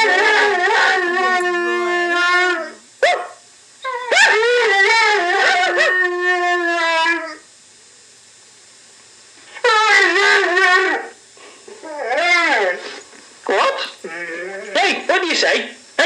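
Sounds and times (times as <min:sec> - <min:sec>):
dog howling: 0:00.0 - 0:07.5, 0:09.6 - 0:15.1
dog yip: 0:03.0 - 0:04.5.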